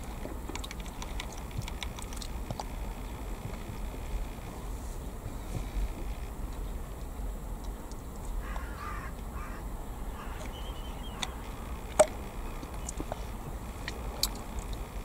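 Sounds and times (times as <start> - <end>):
low outdoor rumble: 0.0 - 15.0
crow cawing: 8.4 - 11.4.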